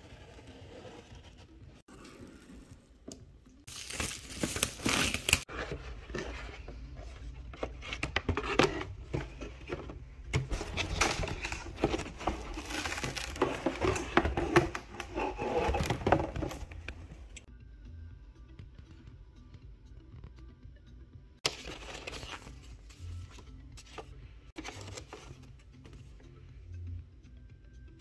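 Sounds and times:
packaging crinkling and tearing: 3.7 - 5.5, 10.6 - 16.6
cardboard rustling: 3.7 - 17.2, 21.4 - 25.5.

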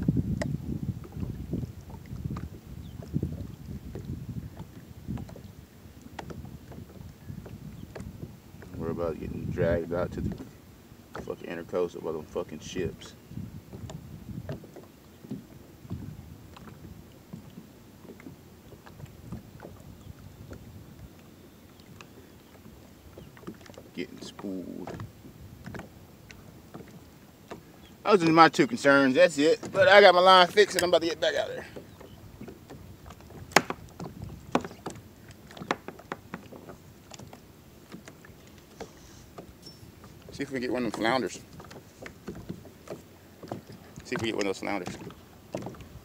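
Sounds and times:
water lapping against kayak hull: 0.0 - 46.0
light knocks and clicks: 31.8 - 39.8.

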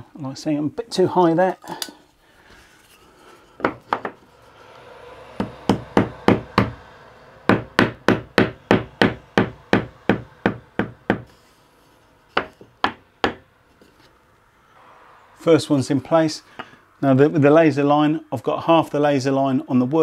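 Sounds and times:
hammer tapping wood block: 5.4 - 6.8, 7.5 - 11.3, 12.4 - 13.4.

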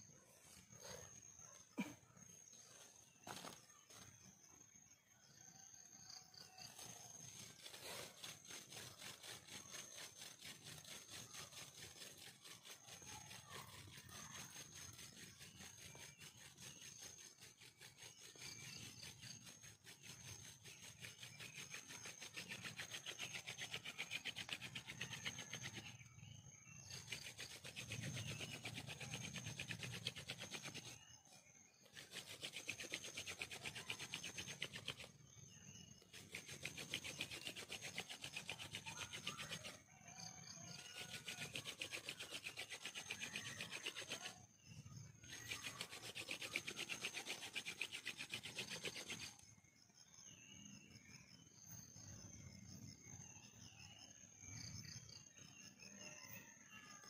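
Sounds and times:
wood rasping on wood: 6.8 - 26.0, 26.9 - 31.0, 31.9 - 35.2, 36.0 - 39.8, 40.7 - 44.4, 45.2 - 49.4.

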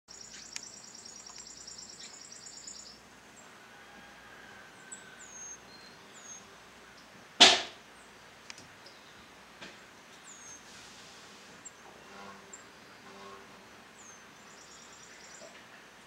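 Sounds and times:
songbird chattering trill: 0.1 - 3.0.

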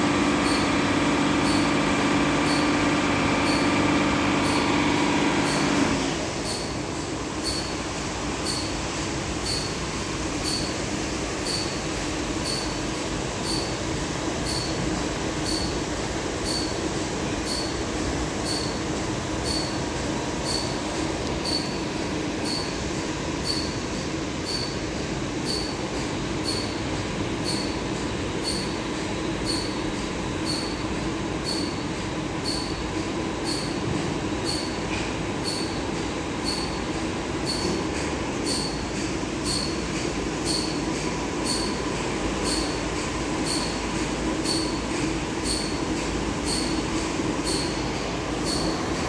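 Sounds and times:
steady machine hum: 0.0 - 49.0.

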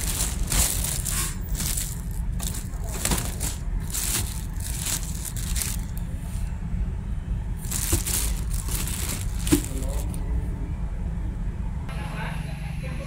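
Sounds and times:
plastic wrapping crinkling: 0.0 - 6.0, 7.6 - 10.2.

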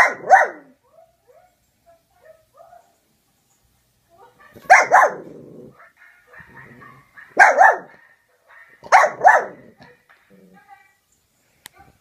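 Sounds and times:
small dog barking: 0.0 - 3.0, 4.5 - 5.7, 6.3 - 8.0, 8.8 - 9.9.

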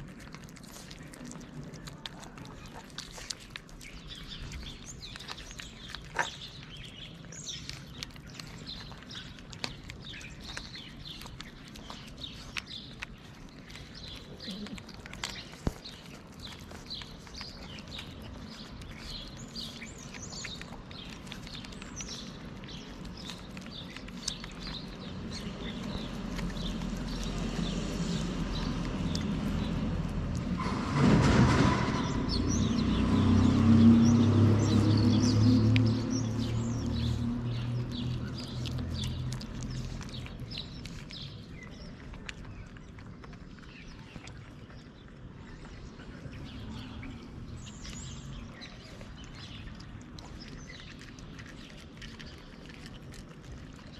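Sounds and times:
cats chewing and lapping food: 0.0 - 53.9
small birds chirping: 0.0 - 53.9.

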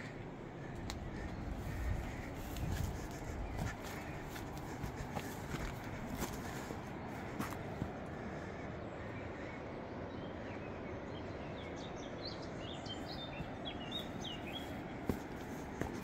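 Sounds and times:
outdoor background noise: 0.0 - 16.0.

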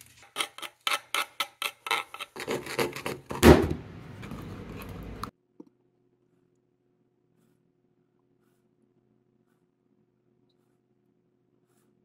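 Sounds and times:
stick rubbing in mixture: 0.0 - 3.3, 7.2 - 12.0
stick scraping plastic cup: 0.0 - 3.4, 4.2 - 5.3.

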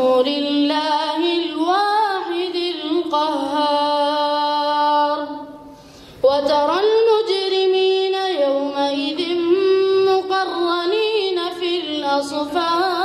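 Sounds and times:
boy chanting into a microphone: 0.0 - 5.6, 6.2 - 13.0.

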